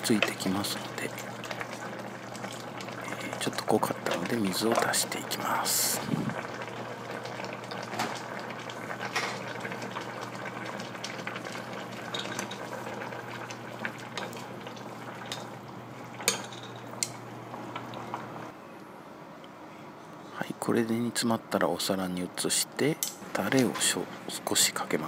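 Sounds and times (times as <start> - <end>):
broth bubbling in a pot: 0.0 - 18.6
steady low hum: 0.0 - 25.0.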